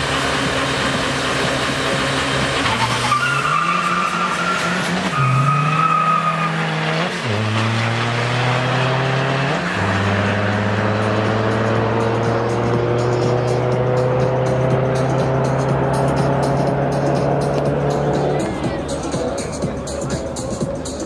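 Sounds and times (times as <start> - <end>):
drag car engine revving: 0.0 - 21.0
tyres squealing: 2.6 - 8.0.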